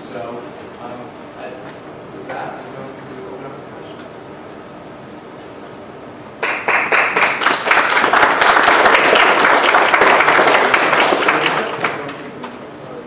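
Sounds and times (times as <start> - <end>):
audience applauding: 6.4 - 12.3.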